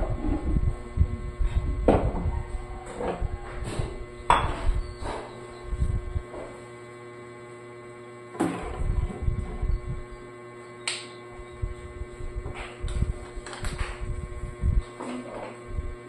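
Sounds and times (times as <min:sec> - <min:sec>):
steady electrical hum: 0:00.0 - 0:16.0.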